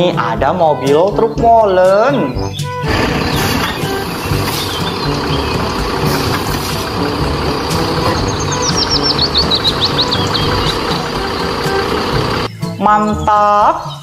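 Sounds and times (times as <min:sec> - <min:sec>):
bird chirping rapidly: 0:01.2 - 0:14.0
diesel engine rumbling: 0:02.7 - 0:12.5.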